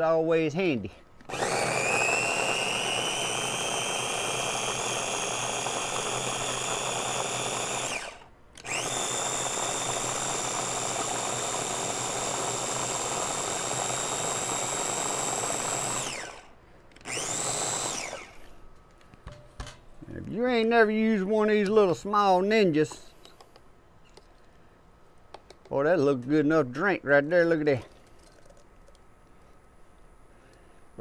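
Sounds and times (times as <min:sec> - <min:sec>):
blender motor whining: 0:01.2 - 0:18.6.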